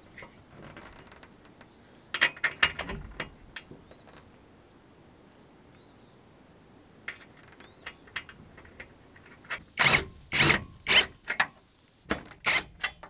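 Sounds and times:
metallic clicks of bolt and nut: 2.1s - 3.7s, 7.1s - 13.0s
cordless drill bursts: 9.8s - 11.3s.

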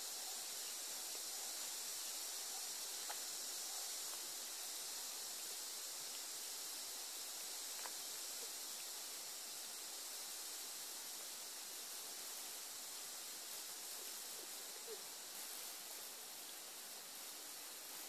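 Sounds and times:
background hiss: 0.0s - 18.0s
faint ticks: 0.2s - 8.9s, 11.1s - 11.4s.

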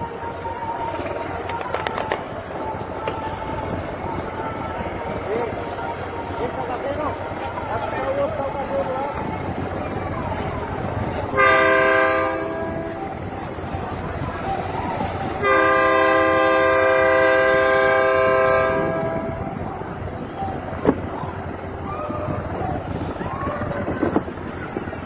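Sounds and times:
ferry horn blasts: 11.3s - 13.2s, 15.4s - 19.5s.

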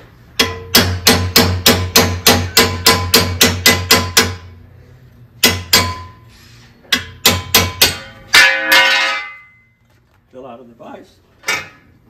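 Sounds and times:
hammer tapping metal punch: 0.4s - 4.4s, 5.4s - 6.2s, 6.8s - 9.5s
metal bracket clanging: 6.9s - 9.7s, 11.4s - 11.9s.

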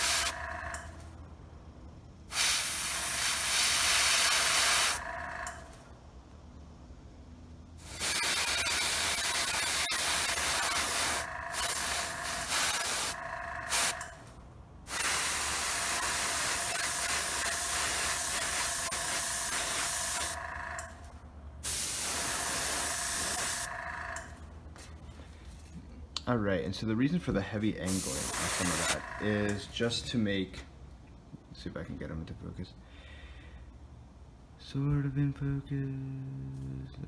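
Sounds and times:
airbrush hissing: 0.0s - 0.4s, 2.3s - 5.0s, 7.8s - 14.0s, 14.9s - 20.4s, 21.6s - 23.7s, 27.9s - 29.0s.

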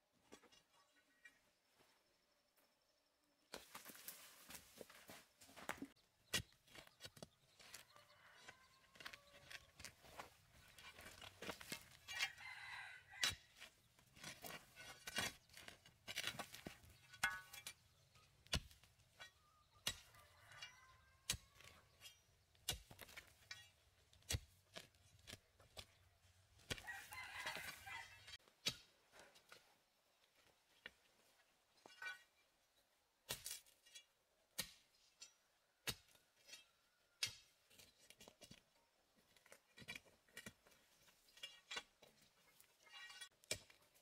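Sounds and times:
rooster crowing: 7.7s - 9.6s, 12.1s - 13.4s, 26.8s - 28.2s
digging bar striking rocky soil: 13.2s - 20.1s, 21.2s - 26.0s, 28.4s - 29.5s, 33.2s - 38.6s, 39.4s - 44.0s.

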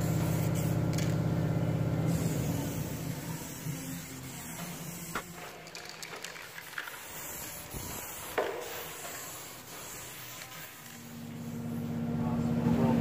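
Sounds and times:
aerosol spray can hissing: 2.1s - 11.5s.

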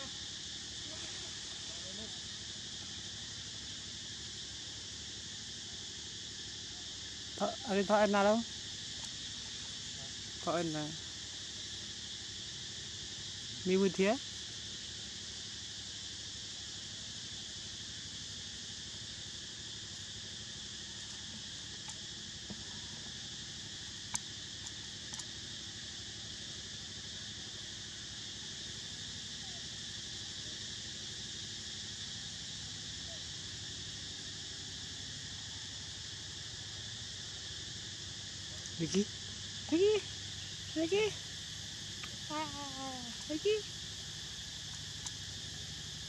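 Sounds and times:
insects droning: 0.0s - 46.0s
faint ticks: 8.9s - 9.2s, 21.0s - 23.2s, 24.0s - 25.4s, 41.9s - 42.2s, 44.6s - 45.3s.

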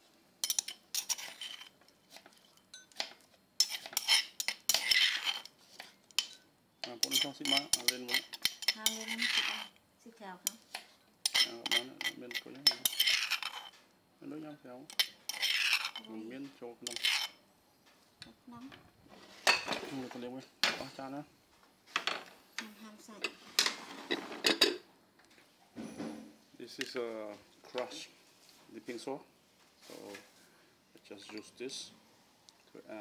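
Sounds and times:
metal spoon scraping stone mortar: 0.4s - 9.8s, 10.4s - 13.8s, 14.9s - 16.2s, 16.8s - 17.4s.

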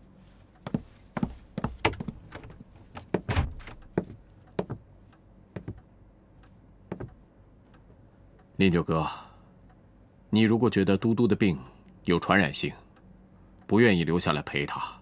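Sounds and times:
irregular thuds and knocks: 0.7s - 4.9s, 5.6s - 5.8s, 6.9s - 7.2s.

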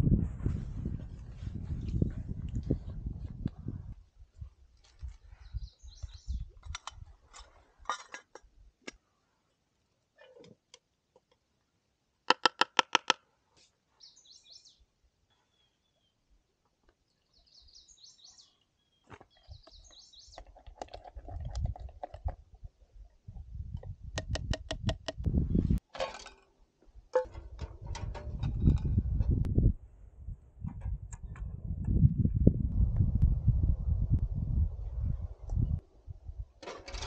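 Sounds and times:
birds chirping: 5.3s - 6.5s, 14.0s - 16.2s, 17.1s - 20.6s.

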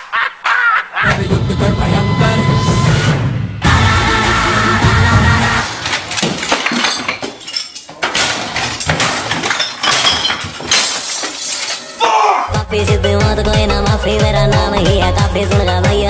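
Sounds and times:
glass bottles smashing: 5.7s - 12.1s.

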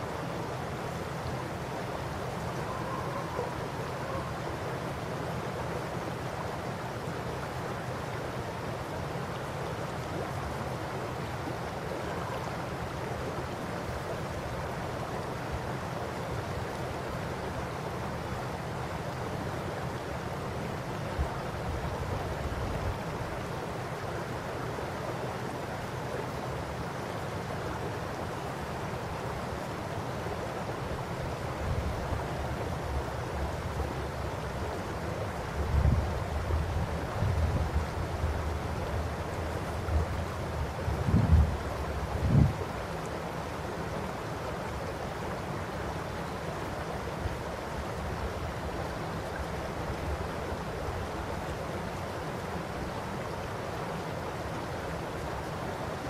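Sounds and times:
wind buffeting microphone: 40.8s - 42.6s.

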